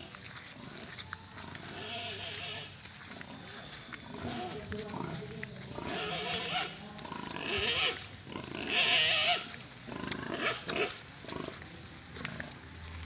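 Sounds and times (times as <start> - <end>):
pig squealing: 5.8 - 11.0.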